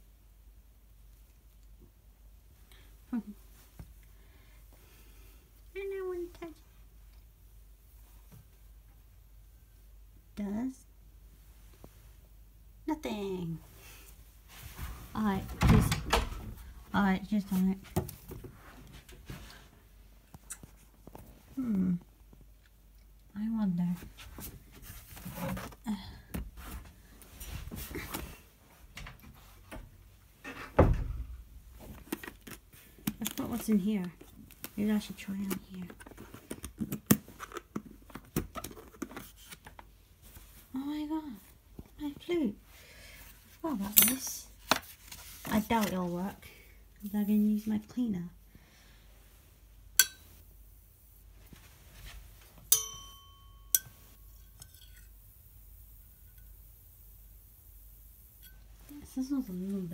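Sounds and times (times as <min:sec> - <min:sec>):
dull thump: 0:30.8 - 0:31.5
metal rod clinking on glass: 0:50.0 - 0:50.3, 0:52.7 - 0:55.1.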